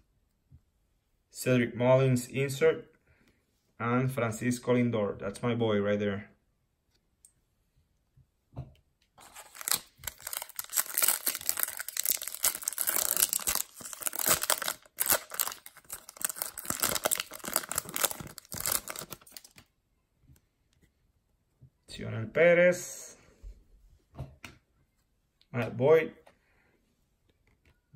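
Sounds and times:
foil wrapper crinkling: 9.2 - 19.6.

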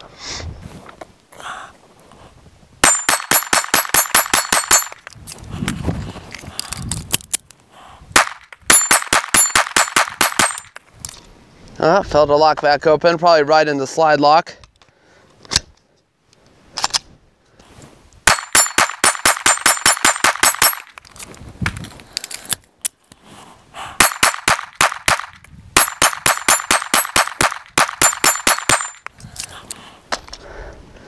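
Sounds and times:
pistol gunshots: 2.8 - 5.0, 8.2 - 10.8, 18.3 - 21.0, 24.0 - 29.0
steel targets ringing: 2.8 - 5.0, 28.0 - 29.1.

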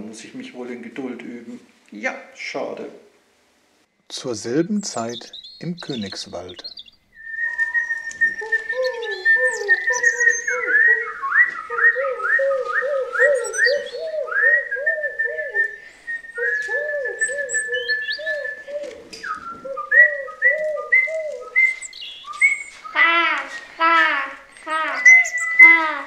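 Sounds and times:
whistled bird calls: 4.8 - 23.9, 24.5 - 26.0.

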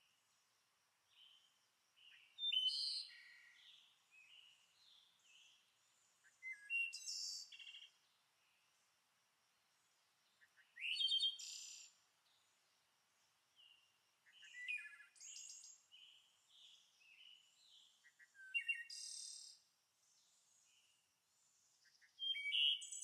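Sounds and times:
small birds chirping: 1.0 - 8.9, 9.8 - 23.0.

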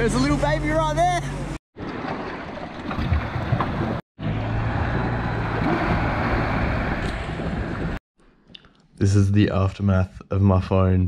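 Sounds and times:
low engine hum: 3.1 - 8.0.

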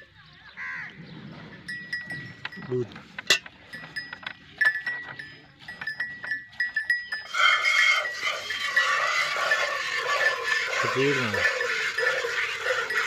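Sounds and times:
milk squirts striking metal pail: 7.3 - 13.0
milk streams hissing: 7.3 - 13.0.

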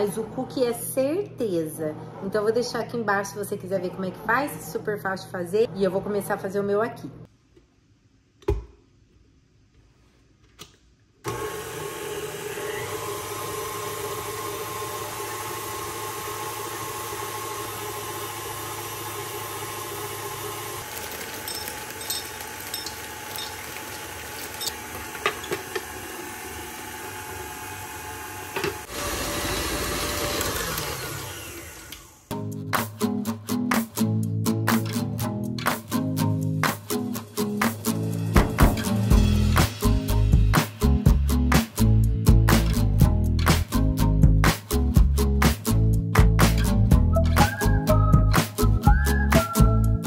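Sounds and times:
electric kitchen mixer running: 11.3 - 32.3.

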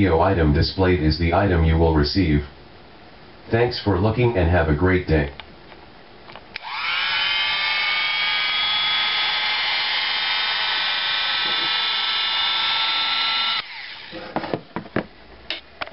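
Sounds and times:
electric hand mixer whining: 6.6 - 14.4.

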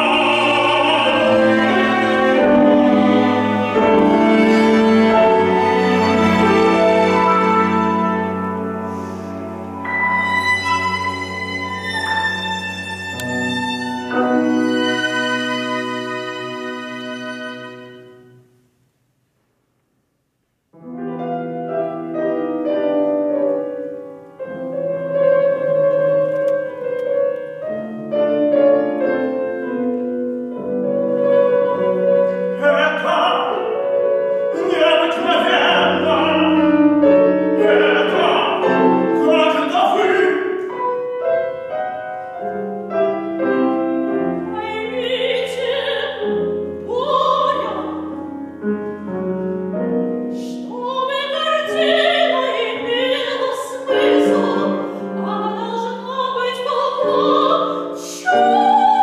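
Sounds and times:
piano and strings sustained notes: 0.0 - 18.9, 20.7 - 59.0
woman singing operatically: 44.6 - 48.1, 50.6 - 59.0.

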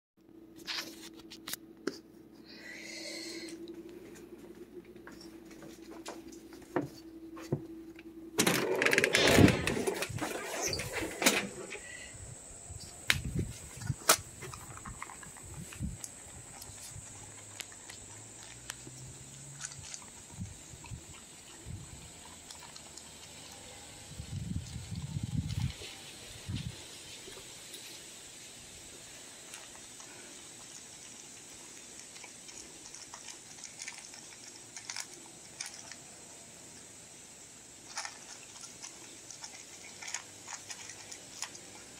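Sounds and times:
faint steady hiss: 9.7 - 41.9
dog crunching dry kibble: 13.7 - 26.2, 29.4 - 36.3, 37.8 - 41.9.

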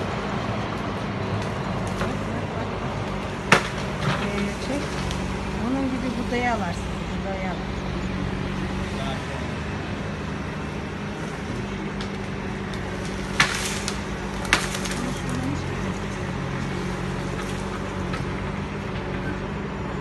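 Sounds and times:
wood cracking and splintering: 0.0 - 5.9, 11.3 - 19.4
low engine hum: 0.0 - 20.0.

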